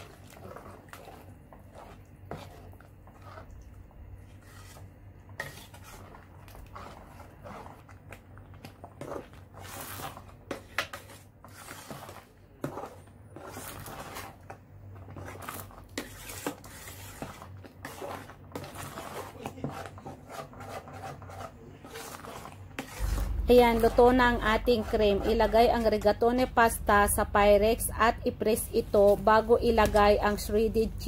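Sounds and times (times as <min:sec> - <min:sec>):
metal spoon stirring thick sauce: 0:00.0 - 0:26.6
spoon scraping and knocking pot: 0:15.0 - 0:26.7.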